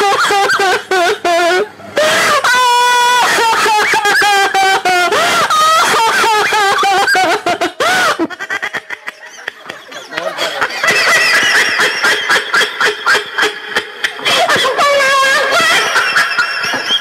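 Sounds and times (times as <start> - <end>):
crowd laughing: 0.0 - 17.0
voices: 8.4 - 11.8, 14.2 - 16.3.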